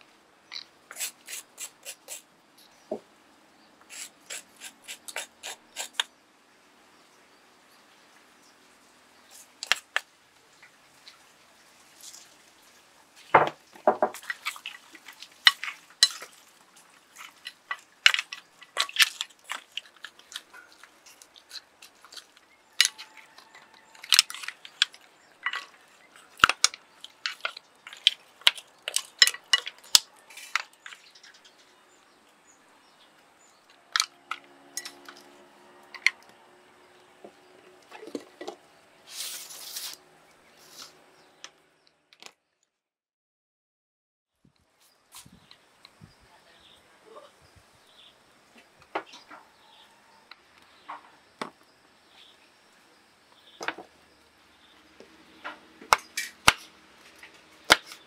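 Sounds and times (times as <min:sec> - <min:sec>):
bamboo cover scraping: 0:11.0 - 0:31.6, 0:37.2 - 0:41.4.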